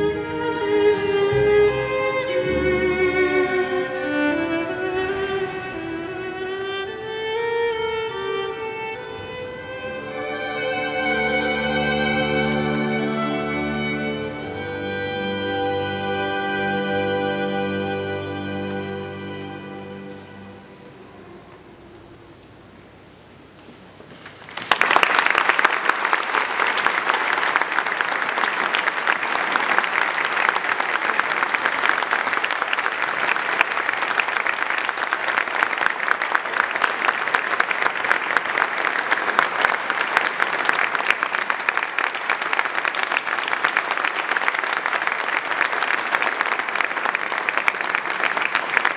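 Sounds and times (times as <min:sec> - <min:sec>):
audience applause: 0:09.9 - 0:14.8, 0:24.2 - 0:48.9.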